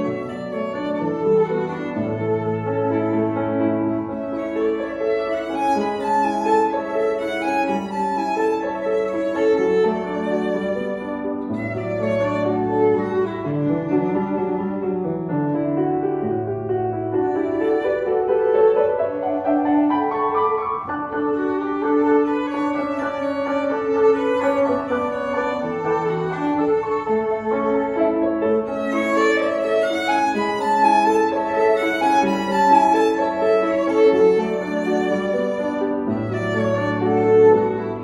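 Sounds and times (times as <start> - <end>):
piano accompaniment: 0.0 - 38.0
violin melody: 0.0 - 38.0.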